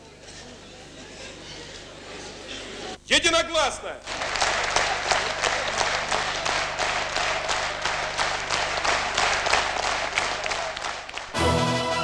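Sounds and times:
audience rhythmic clapping: 4.0 - 11.5.

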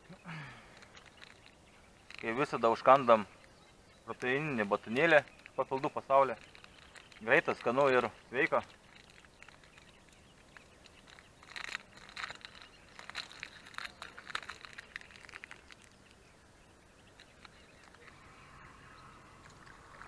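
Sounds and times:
plastic wrapper crinkling: 0.7 - 16.2, 17.0 - 18.2.

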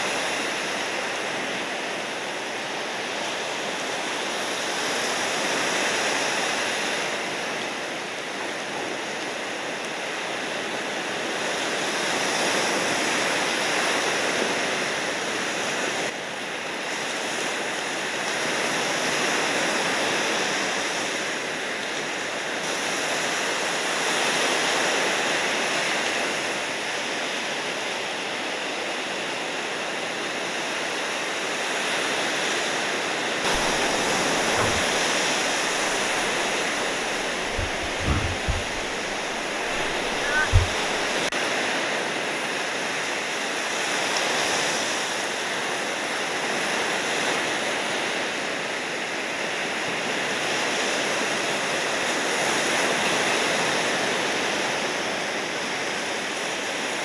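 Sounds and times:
ocean waves breaking: 33.4 - 41.3.

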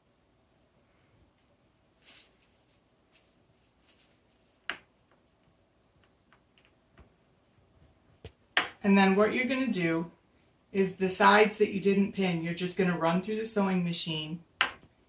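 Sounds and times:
fabric rustling: 2.0 - 4.8.

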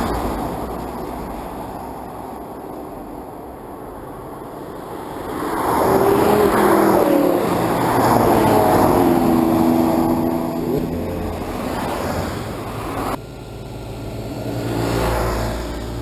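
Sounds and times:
sports cars accelerating past: 5.0 - 13.2.

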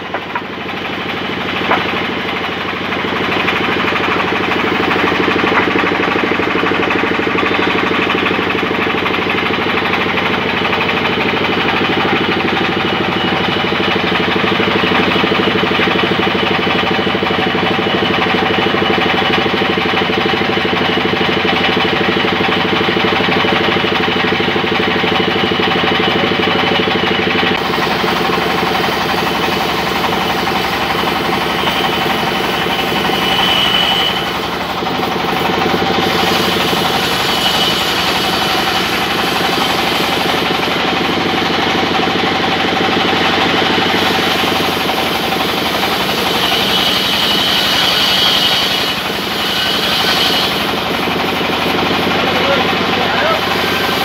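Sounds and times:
band saw cutting log: 0.0 - 54.0
drive engine running: 0.0 - 54.0.

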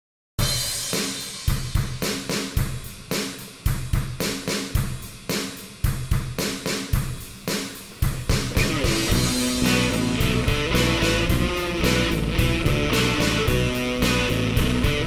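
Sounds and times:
drum kit beat: 0.4 - 15.0
guitar: 8.1 - 15.0.

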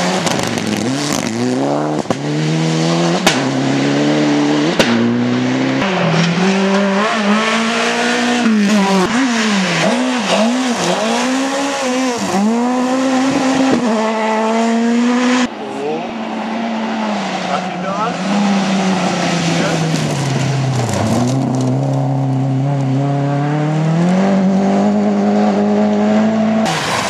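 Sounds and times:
rally car engines revving: 0.0 - 27.0.

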